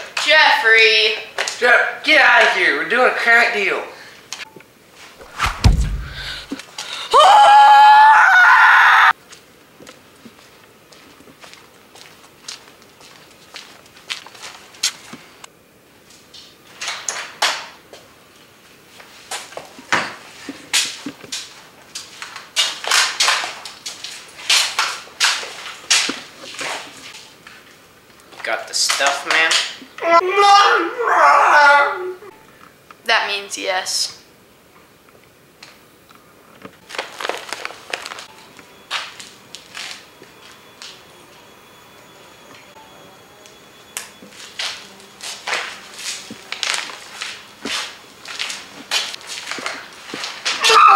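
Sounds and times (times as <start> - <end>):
footsteps and scuffs: 5.0 - 6.4, 9.2 - 15.4, 44.2 - 50.7
door opening: 5.2 - 6.5
crunching and crinkling: 36.8 - 38.3, 44.5 - 50.7.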